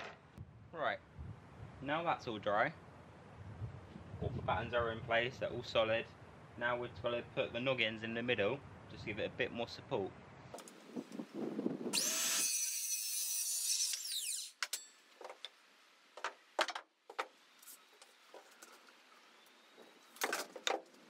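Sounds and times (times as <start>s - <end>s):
circular saw cutting wood: 11.9s - 14.9s.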